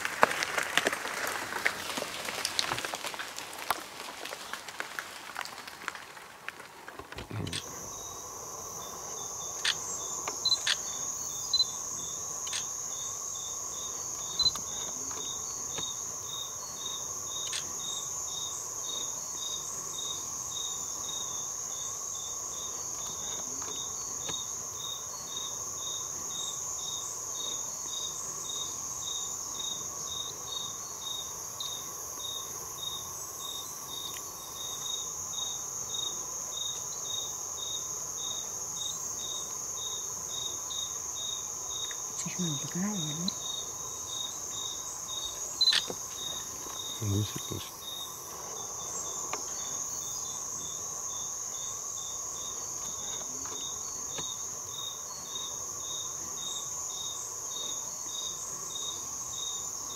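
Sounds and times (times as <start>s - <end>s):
insect chorus buzzing: 0.0s - 59.9s
pulsed insect chirping: 7.2s - 59.9s.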